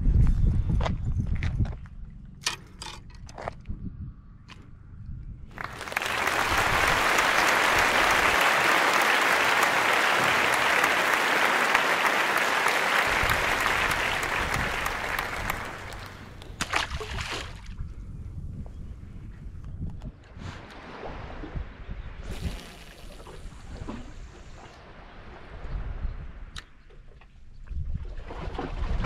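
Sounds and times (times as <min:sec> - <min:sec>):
applause: 0:05.5 - 0:16.4.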